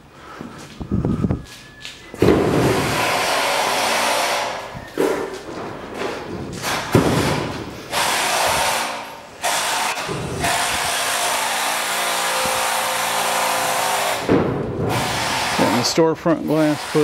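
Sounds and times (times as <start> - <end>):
power tool whirring: 2.6 - 4.8, 7.9 - 14.3, 14.9 - 15.9.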